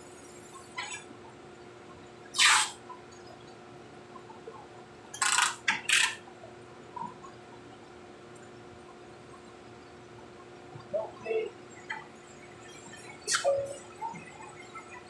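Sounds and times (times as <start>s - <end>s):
steady machine hum: 6.2s - 15.0s.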